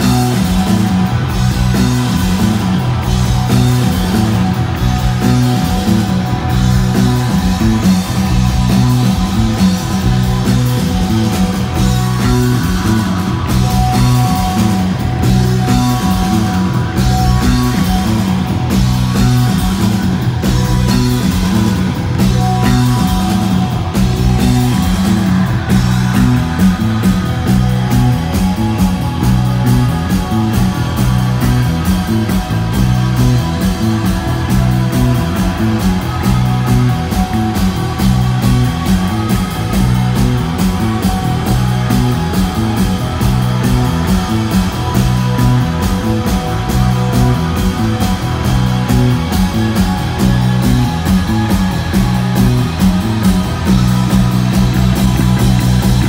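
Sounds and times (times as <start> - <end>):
bass guitar: 0.0 - 56.0
distorted electric guitars: 0.0 - 56.0
drums: 0.0 - 56.0.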